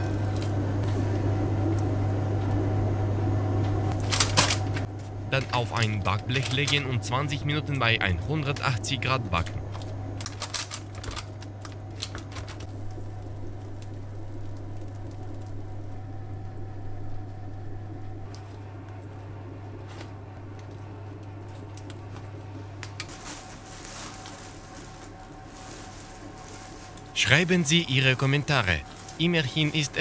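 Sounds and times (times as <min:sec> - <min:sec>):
steady low hum: 0:00.0 - 0:30.0
baking paper rustling: 0:04.0 - 0:07.2, 0:08.1 - 0:12.7, 0:22.8 - 0:30.0.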